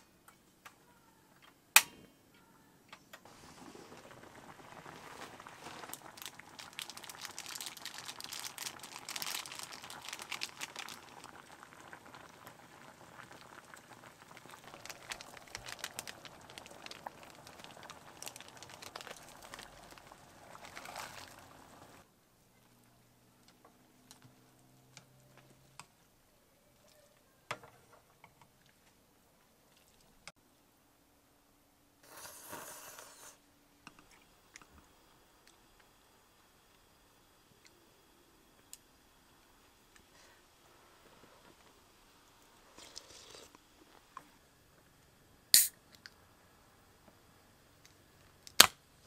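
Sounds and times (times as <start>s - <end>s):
water boiling in a pot: 3.3s - 22.1s, 32.0s - 49.0s
crinkle of sachets being emptied: 4.7s - 12.0s, 14.2s - 22.0s.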